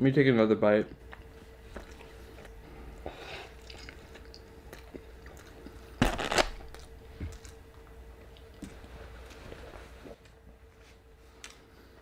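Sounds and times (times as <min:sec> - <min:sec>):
faint hum: 0:00.0 - 0:12.0
chewing with wet mouth clicks: 0:03.5 - 0:05.9, 0:08.2 - 0:08.8.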